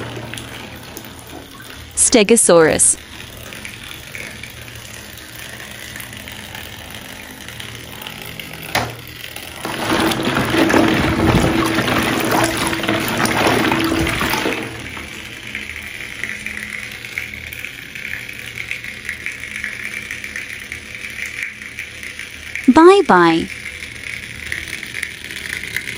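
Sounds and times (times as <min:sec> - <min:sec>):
water sloshing and splashing: 0:09.5 - 0:15.4.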